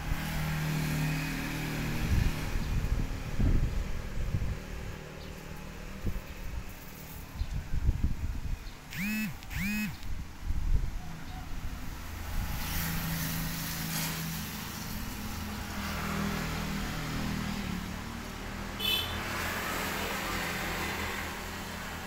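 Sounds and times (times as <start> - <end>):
strong wind blowing: 1.9 - 5.0, 7.4 - 8.6
low motor hum: 8.9 - 10.2.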